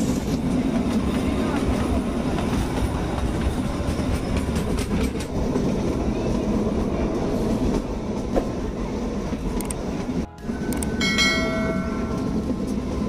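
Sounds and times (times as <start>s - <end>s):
wheels clicking over rail joints: 0.0s - 6.6s
train rumble inside coach: 0.0s - 13.0s.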